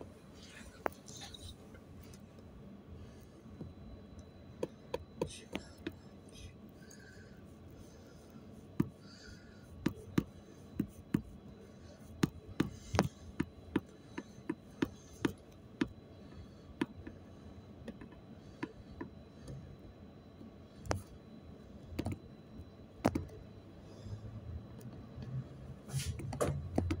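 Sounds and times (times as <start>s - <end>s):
bus low rumble: 0.0s - 27.0s
sharp clicks and knocks: 26.2s - 27.0s.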